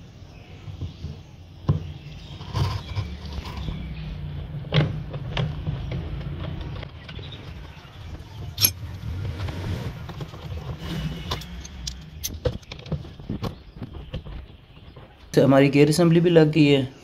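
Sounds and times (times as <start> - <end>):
metal tools clinking and knocking: 8.6 - 8.8.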